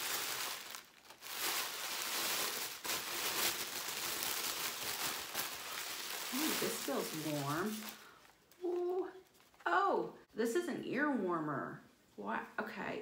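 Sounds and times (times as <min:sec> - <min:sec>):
tissue paper rustling and crinkling: 0:00.0 - 0:09.7.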